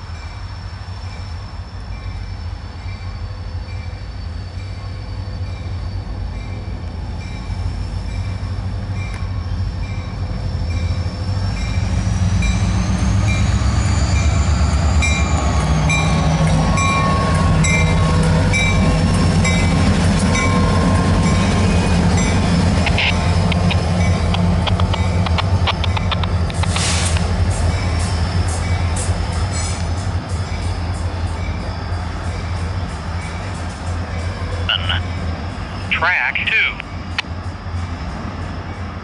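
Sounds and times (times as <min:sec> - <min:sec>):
diesel locomotive engine drone: 0:00.0 - 0:39.0
high whine: 0:18.8 - 0:26.9, 0:34.2 - 0:37.8.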